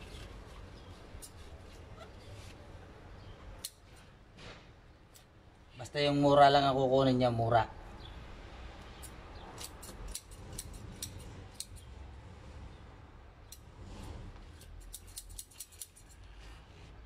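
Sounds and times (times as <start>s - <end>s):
plant leaves being snipped: 9.0s - 11.8s, 14.4s - 16.5s.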